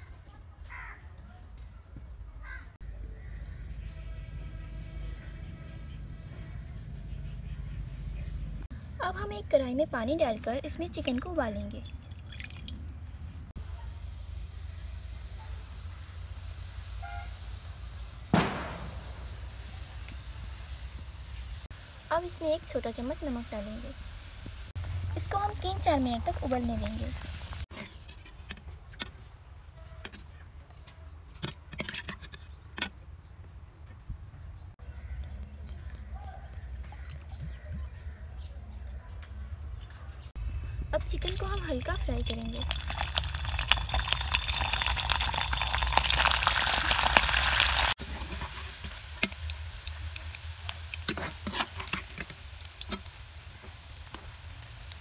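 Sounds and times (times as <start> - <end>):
chicken frying in hot oil: 13.6 - 18.3, 19.3 - 27.7, 41.0 - 55.0.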